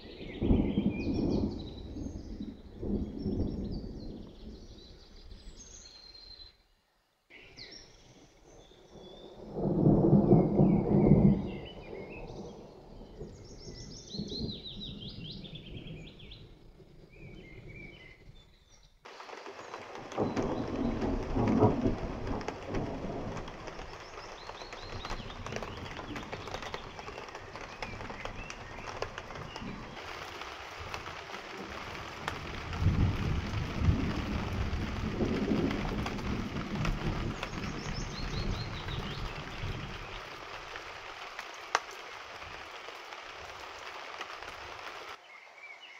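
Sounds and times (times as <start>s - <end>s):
thunder rumbling: 0.0s - 5.4s, 8.9s - 18.2s, 19.1s - 44.9s
steady rain: 0.0s - 6.5s, 7.1s - 45.9s
small birds singing: 0.0s - 30.4s, 31.5s - 45.9s.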